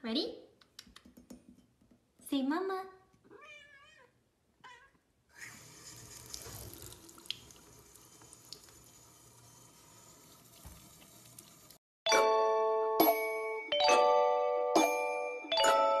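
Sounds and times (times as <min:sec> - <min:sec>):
faucet running into sink: 0:05.4 - 0:11.8
bright chiming music: 0:12.1 - 0:16.0.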